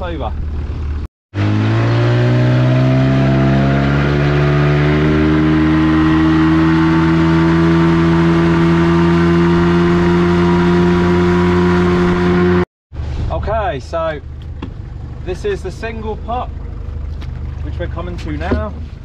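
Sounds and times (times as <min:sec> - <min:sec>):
boat engine running: 0:14.2 - 0:19.0.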